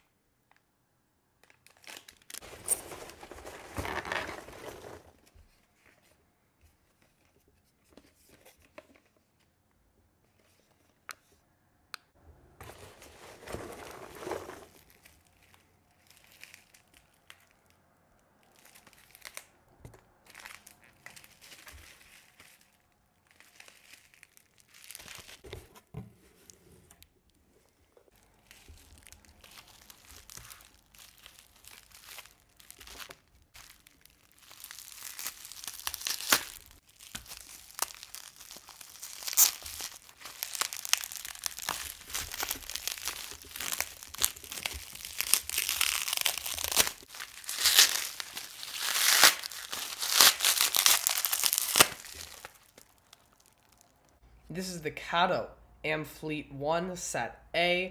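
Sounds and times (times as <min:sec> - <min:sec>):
bubble wrap crinkling: 0:01.4 - 0:06.0, 0:12.6 - 0:54.2
hands rustling packing peanuts: 0:01.7 - 0:05.3, 0:12.6 - 0:17.2, 0:20.2 - 0:26.6, 0:27.4 - 0:54.0.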